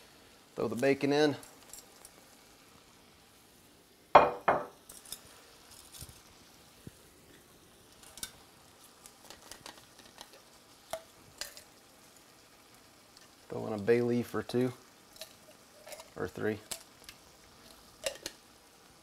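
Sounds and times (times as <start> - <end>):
faint sizzle: 0.0 - 19.0
metal tongs clacking on pan: 8.0 - 8.4, 9.2 - 11.7, 15.1 - 18.4.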